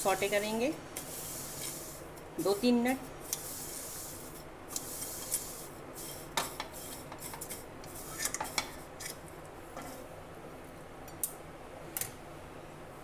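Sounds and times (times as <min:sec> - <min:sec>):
spatula scraping a metal pot: 0:04.8 - 0:09.2.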